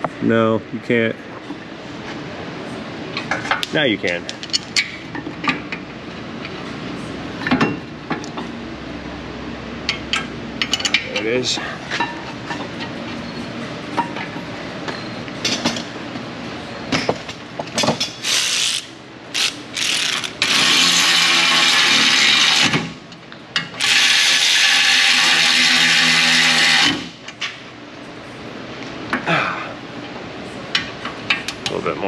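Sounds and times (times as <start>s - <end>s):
cordless power ratchet: 18.2s - 22.7s, 23.8s - 27.1s.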